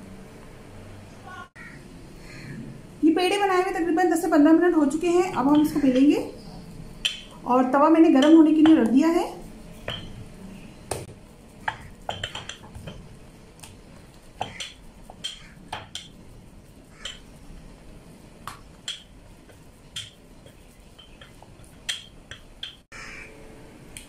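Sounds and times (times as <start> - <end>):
rolling pin clacking on wooden board: 14.4 - 16.2.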